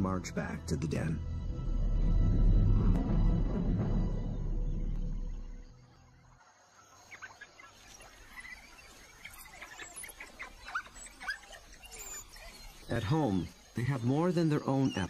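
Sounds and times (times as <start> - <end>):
music: 0.0 - 6.1
faint high animal chirps: 7.0 - 15.0.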